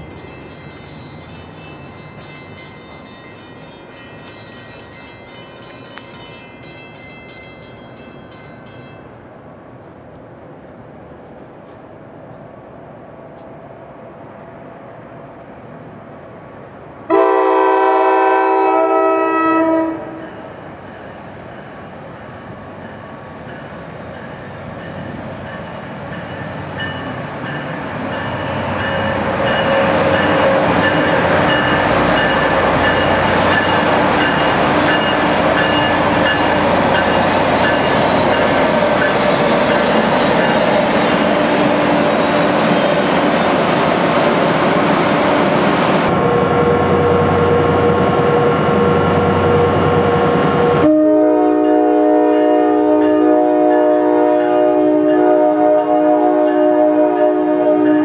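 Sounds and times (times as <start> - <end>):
train horn chord: 17.1 - 20.3, 50.7 - 58.0
train wheels rumbling: 19.2 - 58.0.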